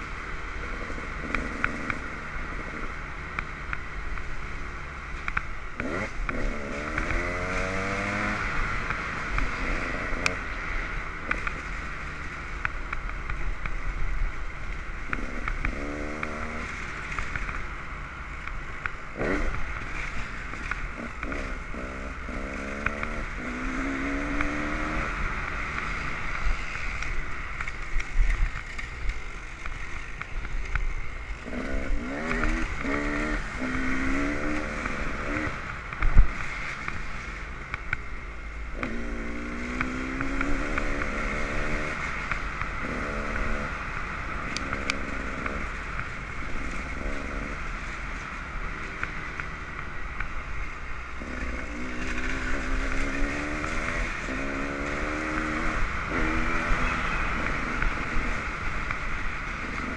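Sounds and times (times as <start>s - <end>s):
dirt bike engine revving: 0.0s - 3.7s, 5.8s - 10.4s, 15.0s - 17.6s, 19.1s - 26.8s, 31.3s - 35.6s, 38.7s - 45.8s, 51.2s - 59.9s.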